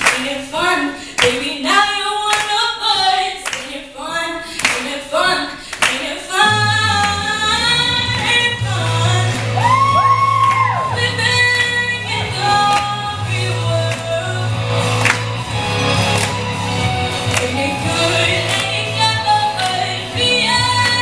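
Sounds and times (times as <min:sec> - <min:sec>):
woman singing into microphone: 0:00.0 - 0:15.4, 0:16.2 - 0:21.0
pop music backing: 0:00.0 - 0:21.0
steady bass line: 0:06.4 - 0:21.0.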